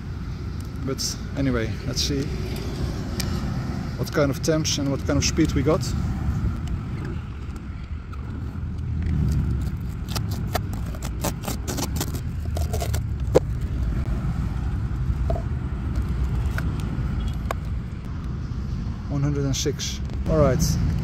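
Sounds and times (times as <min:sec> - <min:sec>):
steady low rumble: 0:00.0 - 0:21.0
tape peeling with crackling rips: 0:09.0 - 0:13.9, 0:15.9 - 0:16.9.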